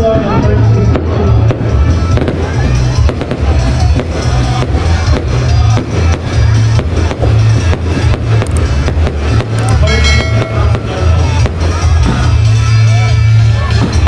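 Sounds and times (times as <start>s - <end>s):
fireworks bursting: 0.0s - 14.0s
loud music with heavy bass: 0.0s - 14.0s.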